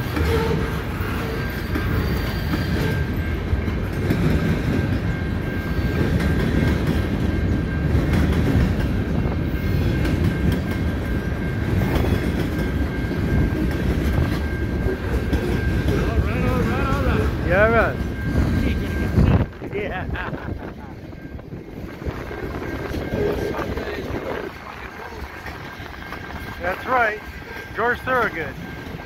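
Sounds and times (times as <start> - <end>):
train wheels rumbling on rail: 0.0 - 29.0.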